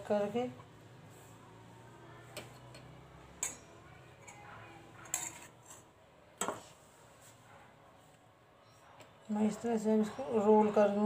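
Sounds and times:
utensils and dishes clinking: 0:02.4 - 0:06.7.

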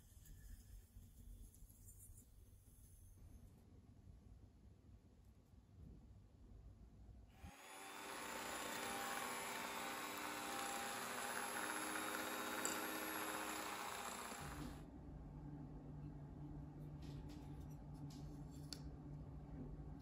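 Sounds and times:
electric hand mixer beating: 0:07.4 - 0:14.8.

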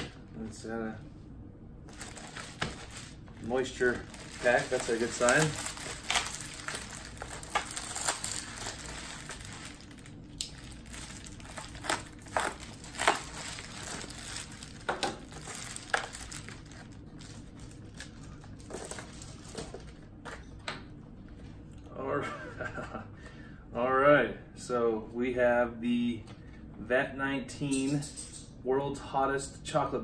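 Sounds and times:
sharp foil crackles: 0:01.9 - 0:19.5
foil crinkling and rustling: 0:01.9 - 0:20.0.

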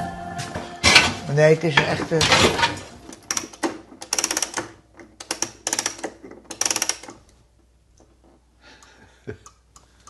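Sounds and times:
rapid mechanism clicking: 0:03.1 - 0:07.3.

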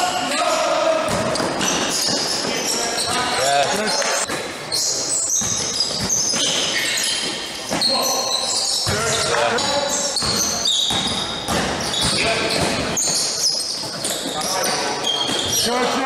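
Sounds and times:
shoes squeaking on floor: 0:00.3 - 0:16.0
basketball bouncing: 0:05.3 - 0:06.7, 0:10.2 - 0:13.2.

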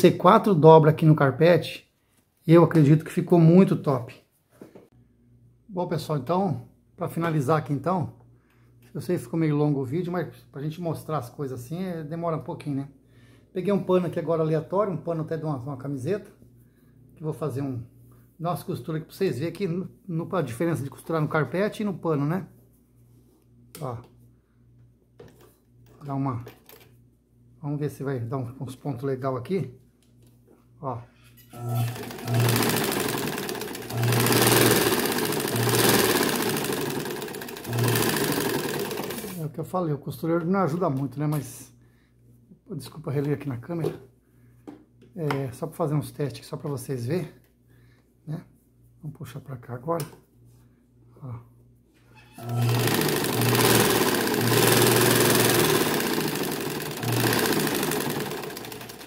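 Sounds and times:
sewing machine needle clatter: 0:31.8 - 0:39.4, 0:52.4 - 0:59.0.

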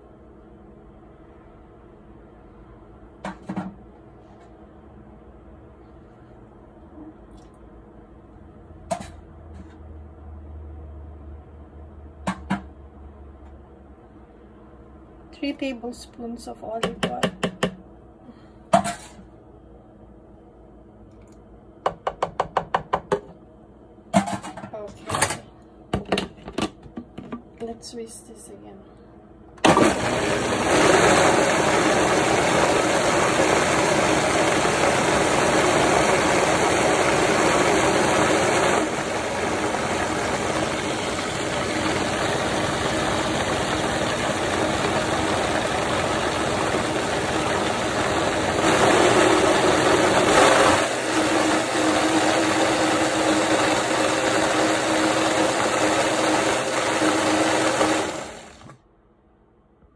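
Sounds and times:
blender motor running: 0:29.6 - 0:58.8.

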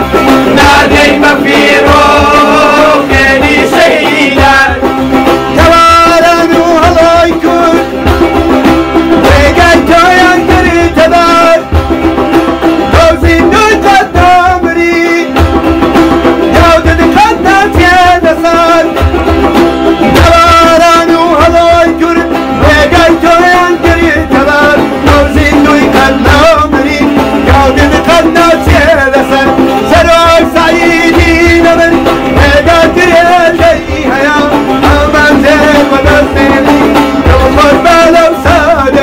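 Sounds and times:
man singing: 0:00.0 - 0:08.1, 0:09.1 - 0:11.8, 0:12.8 - 0:15.5, 0:16.4 - 0:19.2, 0:20.0 - 0:39.0
hand drum beat: 0:00.0 - 0:39.0
plucked lute: 0:00.0 - 0:39.0.

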